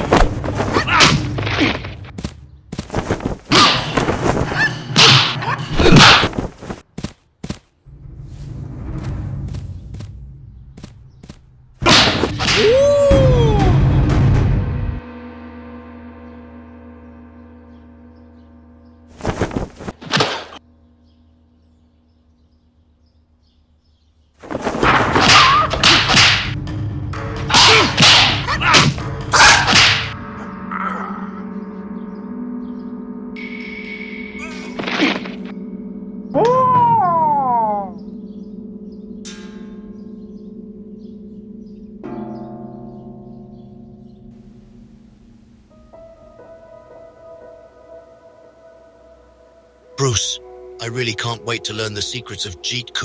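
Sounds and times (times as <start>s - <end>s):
low steady hum: 37.9s - 50.8s.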